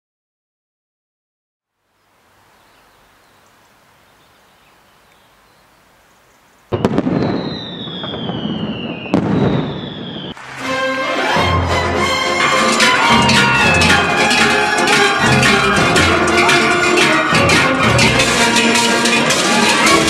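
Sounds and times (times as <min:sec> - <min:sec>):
faint hiss: 0:01.7 - 0:06.9
firework crackling: 0:06.6 - 0:10.7, 0:12.4 - 0:20.0
firework bangs: 0:06.7 - 0:10.4
firework whistle sliding down: 0:06.7 - 0:10.4.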